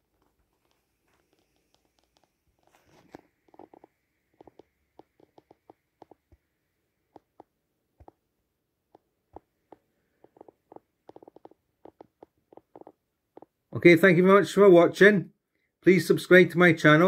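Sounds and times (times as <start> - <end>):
small irregular clicks: 0.0 - 8.3, 8.9 - 13.7.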